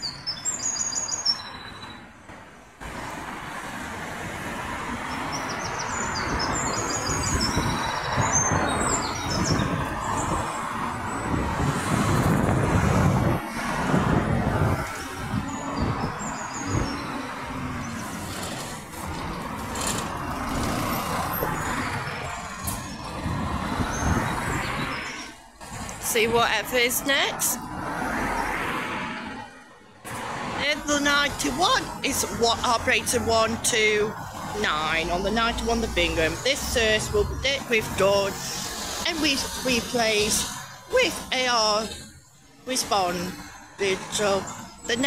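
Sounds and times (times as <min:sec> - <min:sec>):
small birds chirping: 0:00.0 - 0:02.0, 0:05.1 - 0:11.4
cars passing by: 0:00.0 - 0:45.0.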